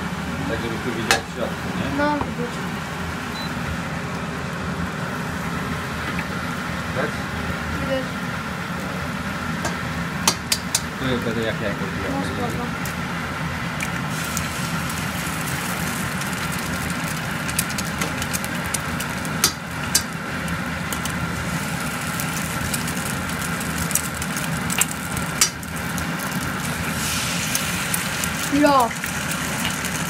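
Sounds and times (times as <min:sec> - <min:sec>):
food sizzling in a pan: 0:12.7 - 0:30.0
eggs cracking on pan rim: 0:15.5 - 0:21.2, 0:22.0 - 0:26.7.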